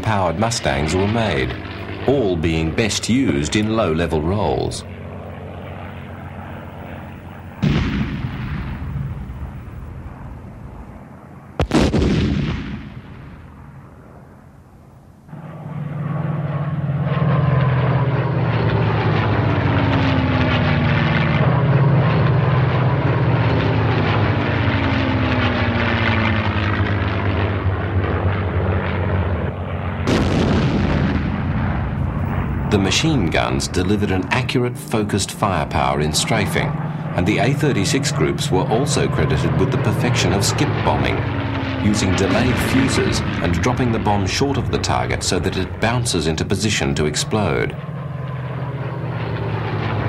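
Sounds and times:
propeller plane engine passing: 0:00.0 - 0:50.0
heavy explosions: 0:07.5 - 0:10.9, 0:11.6 - 0:13.9, 0:30.0 - 0:33.9.

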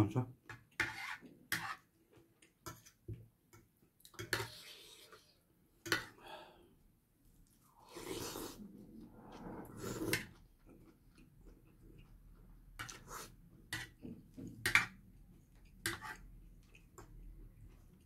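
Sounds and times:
noodles slurped: 0:07.7 - 0:10.5.

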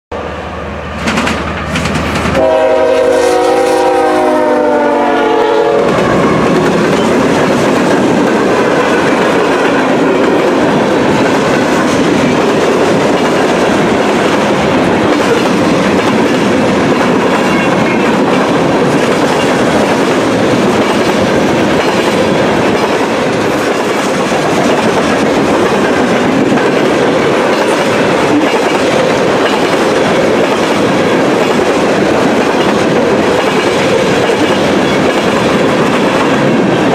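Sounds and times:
freight cars rumbling and clattering: 0:01.0 - 0:02.4, 0:05.9 - 0:36.9
train horn: 0:02.4 - 0:06.6.

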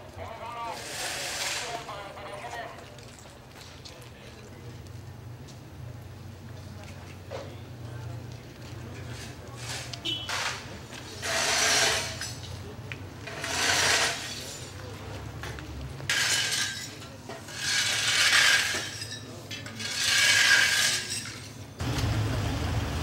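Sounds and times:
broken glass scraping and clinking: 0:09.0 - 0:12.6, 0:13.2 - 0:14.9, 0:16.1 - 0:21.8.

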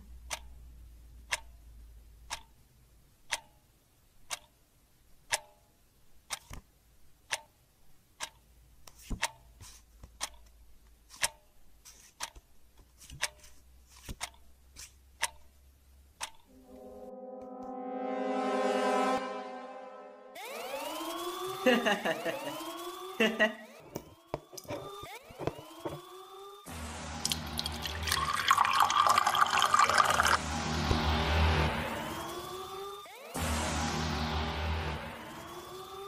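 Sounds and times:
clock ticking: 0:00.0 - 0:06.6, 0:07.2 - 0:08.6, 0:14.2 - 0:16.5
low droning tone: 0:16.5 - 0:21.1.

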